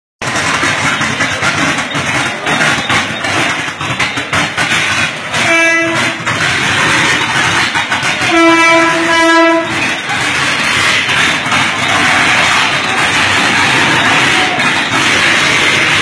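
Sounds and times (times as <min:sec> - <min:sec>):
moving train rumble: 0:00.2 - 0:16.0
rain rushing: 0:05.0 - 0:16.0
train horn blasts: 0:05.3 - 0:06.4, 0:08.1 - 0:09.9.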